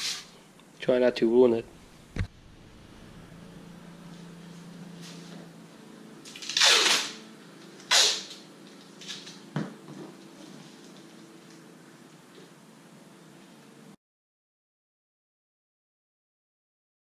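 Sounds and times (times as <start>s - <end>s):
faint steady hum: 0.2s - 14.0s
masking tape tearing: 6.2s - 7.2s, 7.8s - 9.4s.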